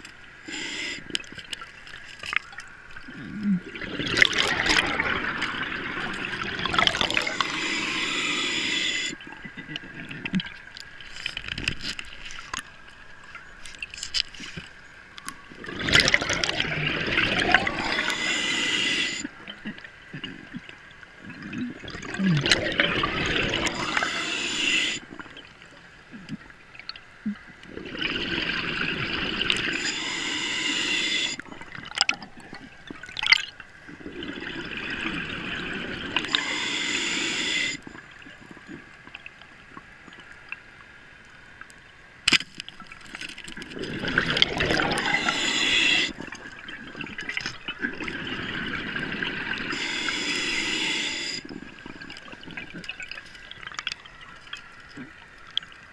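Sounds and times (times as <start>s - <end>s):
underwater breath bubbles: 0.0s - 1.6s, 3.0s - 10.5s, 15.6s - 25.5s, 27.2s - 38.9s, 43.7s - 54.0s.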